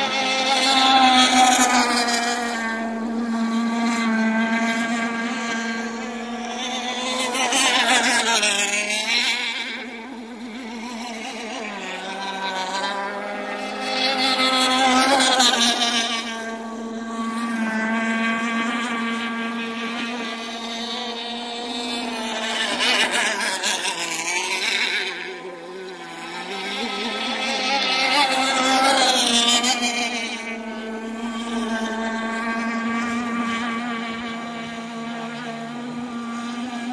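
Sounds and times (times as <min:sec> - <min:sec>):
racing boat engines whining: 0:00.0 - 0:36.9.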